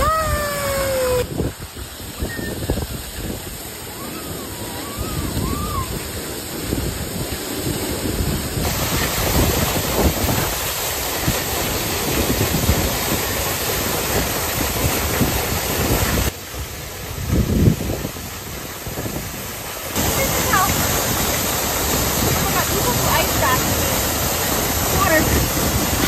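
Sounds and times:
waterfall pouring over rocks: 0.0 - 26.0
feet wading through creek: 19.7 - 26.0.

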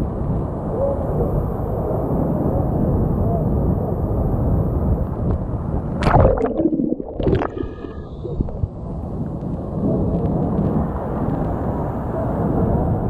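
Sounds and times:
water splashing on microphone: 6.0 - 8.8.

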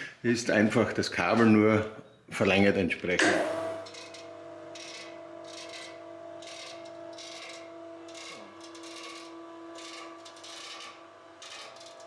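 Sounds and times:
winch motor hum: 3.6 - 12.0
rasping scrape: 3.8 - 12.0.

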